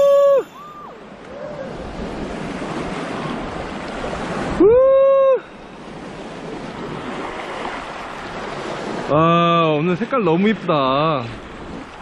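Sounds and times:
wind buffeting microphone: 0.0 - 9.3
waves washing over pebbles: 0.0 - 12.0.

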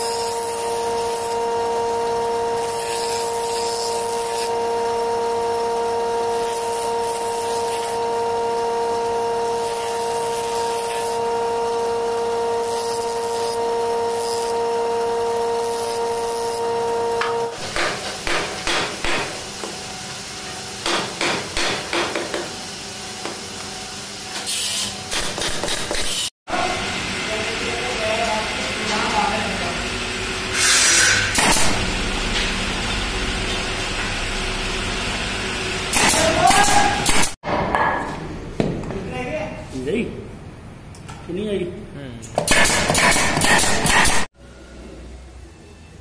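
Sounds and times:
sanding drum humming: 0.0 - 24.3, 26.6 - 36.0.

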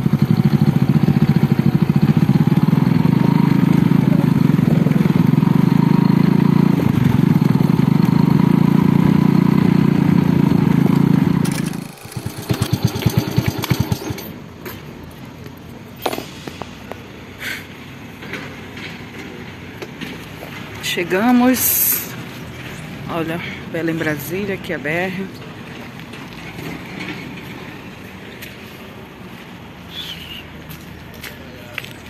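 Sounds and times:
small motorcycle engine: 0.0 - 14.3.

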